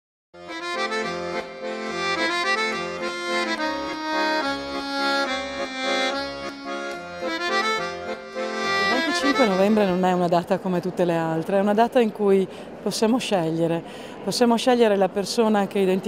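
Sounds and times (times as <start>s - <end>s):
instrumental music with bass pulse: 0.4s - 9.4s.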